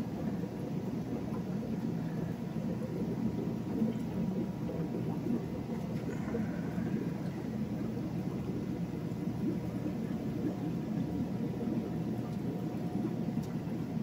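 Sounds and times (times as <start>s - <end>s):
aquarium air stones bubbling: 0.0s - 14.0s.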